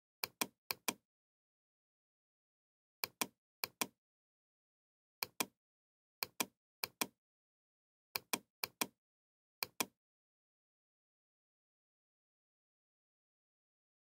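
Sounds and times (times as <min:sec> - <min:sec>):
computer mouse clicking: 0:00.2 - 0:01.0, 0:03.0 - 0:04.0, 0:05.2 - 0:05.6, 0:06.2 - 0:07.2, 0:08.2 - 0:09.0, 0:09.6 - 0:10.0.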